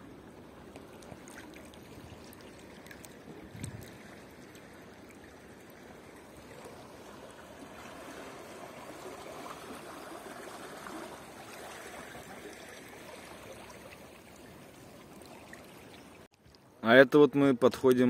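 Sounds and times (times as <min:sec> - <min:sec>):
river water rushing: 0:04.0 - 0:15.9.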